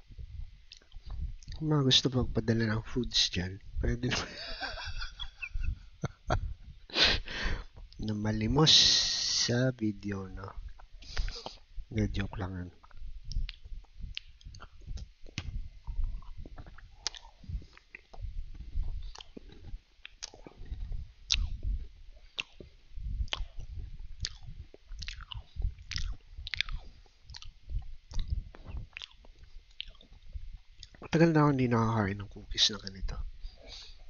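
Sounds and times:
soft mouth sounds: 0:00.2 - 0:01.6, 0:10.4 - 0:31.2
cookie crunching: 0:12.8 - 0:22.7, 0:23.3 - 0:30.2.

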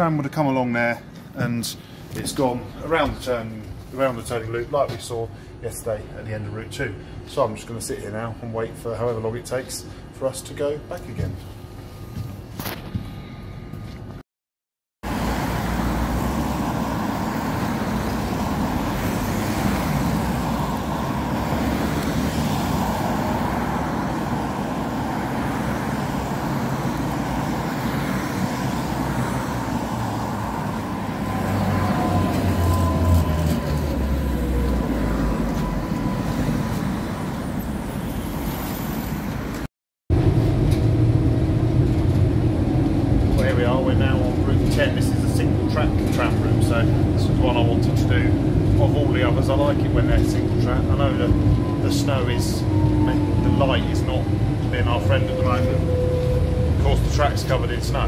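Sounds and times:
cars passing: 0:15.0 - 0:58.0
low rumble inside tram: 0:15.1 - 0:58.0
tram approaching: 0:15.1 - 0:58.0
falling whine: 0:15.8 - 0:39.5.

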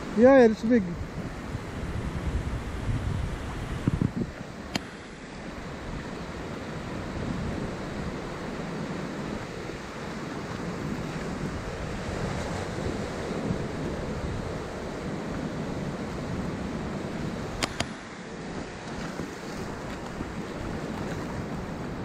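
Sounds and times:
surf washing on shore: 0:00.0 - 0:22.0
wind rumbling on microphone: 0:00.0 - 0:22.0
sharp clicks: 0:17.6 - 0:18.0.

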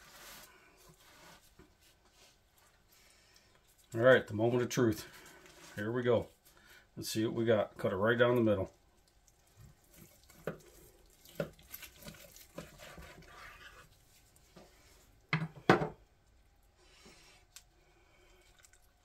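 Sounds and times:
knife cutting meat on wooden board: 0:11.3 - 0:13.9.

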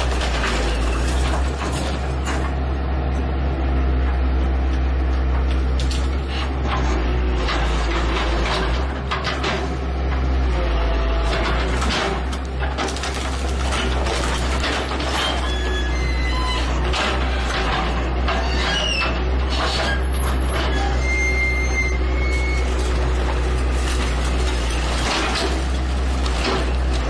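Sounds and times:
wood splintering and crashing: 0:00.0 - 0:02.6, 0:11.0 - 0:27.0
excavator diesel engine running: 0:00.0 - 0:27.0.

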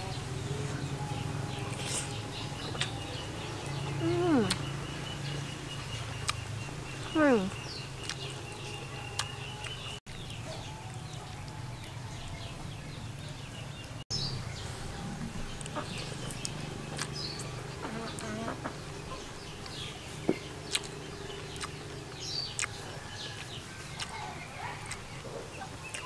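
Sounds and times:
chickens clucking and cheeping: 0:00.0 - 0:26.0
steady low buzz: 0:14.1 - 0:22.9.

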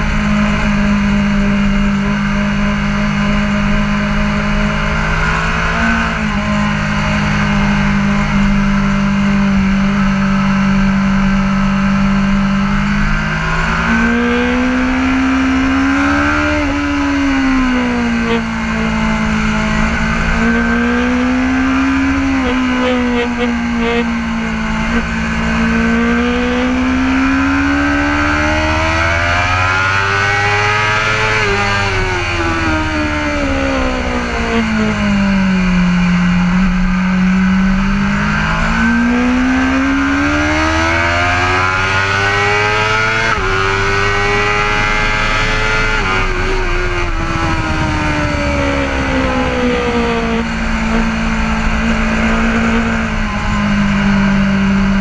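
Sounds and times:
motorcycle engine revving: 0:00.0 - 0:55.0
wind rush: 0:46.0 - 0:54.4.

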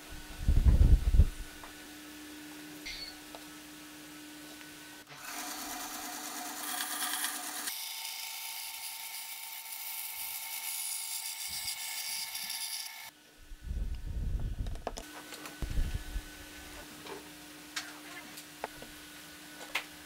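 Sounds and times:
power tool running: 0:05.1 - 0:13.1.

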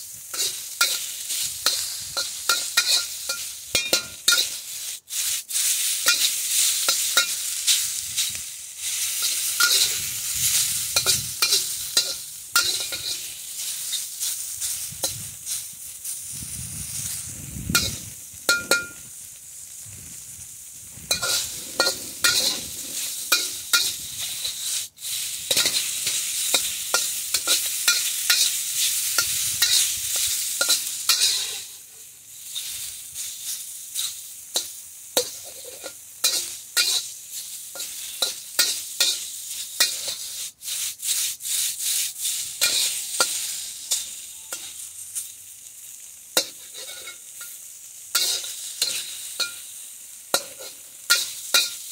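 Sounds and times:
food sizzling in a wok: 0:00.0 - 0:51.9
metal spatula scraping a wok: 0:00.0 - 0:51.9.

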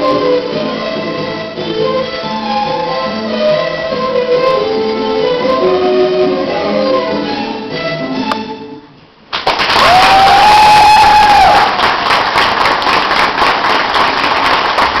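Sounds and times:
backing music: 0:00.0 - 0:09.0
audience applause: 0:09.3 - 0:15.0
cheering shout: 0:09.7 - 0:11.8.

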